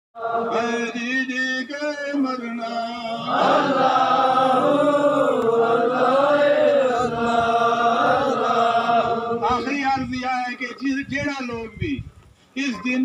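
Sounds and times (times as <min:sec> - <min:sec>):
man chanting: 0:00.5 - 0:03.3, 0:09.4 - 0:10.4.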